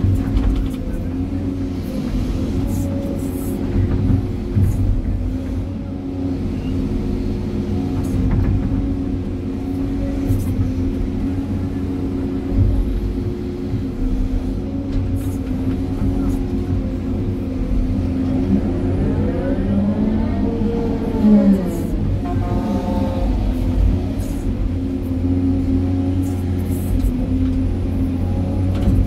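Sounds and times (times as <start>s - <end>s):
excavator diesel engine running: 0.0s - 29.0s.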